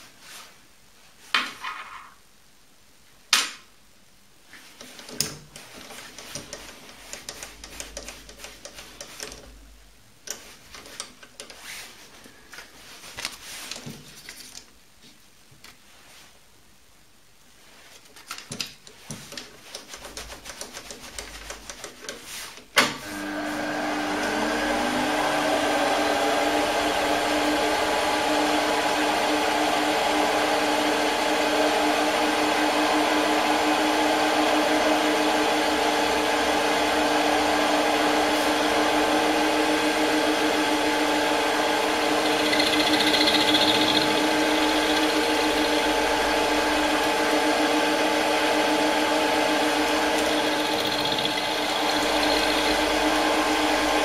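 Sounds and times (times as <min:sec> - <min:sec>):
lathe motor spinning: 0:23.1 - 0:54.0.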